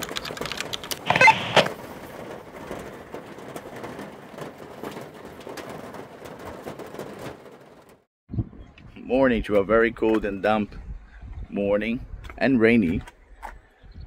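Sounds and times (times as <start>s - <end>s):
raindrop clicks: 0.0s - 8.0s
steady rain falling: 1.7s - 8.0s.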